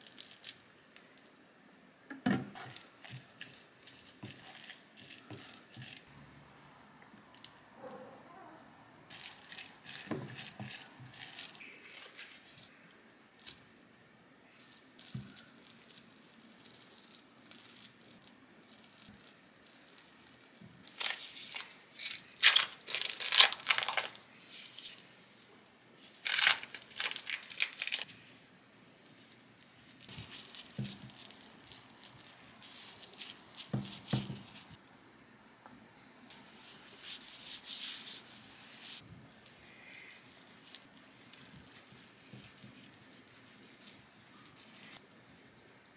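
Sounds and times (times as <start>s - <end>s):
plastic wrapping crinkling and tearing: 0.0s - 0.7s, 2.6s - 6.1s, 9.1s - 12.7s, 14.5s - 25.0s, 26.0s - 28.2s, 29.1s - 34.8s, 36.6s - 45.0s
quiet plastic rustling: 26.0s - 34.8s.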